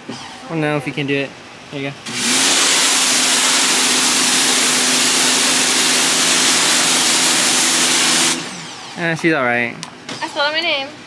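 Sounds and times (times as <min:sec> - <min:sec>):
pressure washer spraying concrete: 0:02.1 - 0:08.7
pump motor humming: 0:02.1 - 0:09.1.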